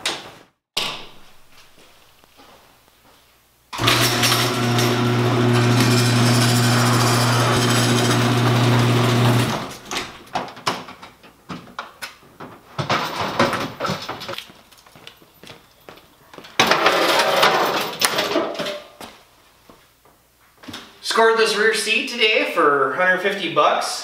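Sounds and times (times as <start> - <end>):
garage door opener motor hum: 3.8 - 10.2
knocks and clatter: 9.4 - 14.4.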